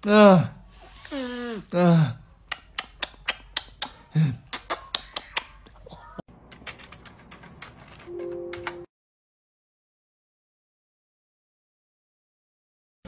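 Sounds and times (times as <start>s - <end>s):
kissing smacks: 2.4s - 5.8s
laptop keys clicking: 6.5s - 8.9s.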